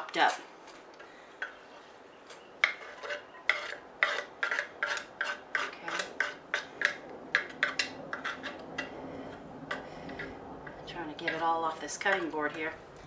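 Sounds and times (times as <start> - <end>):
knife scraping cutting board: 2.6 - 6.8, 7.6 - 8.9.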